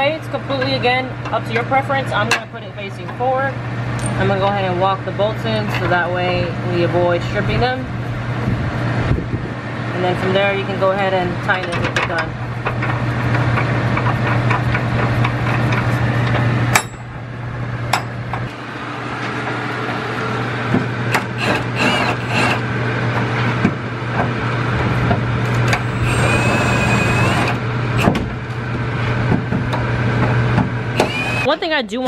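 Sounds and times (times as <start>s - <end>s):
impact wrench hammering bolts: 16.7s - 17.1s.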